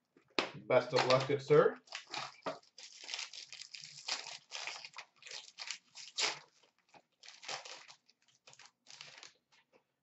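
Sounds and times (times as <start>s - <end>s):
foil wrapper tearing and crinkling: 1.9s - 9.6s.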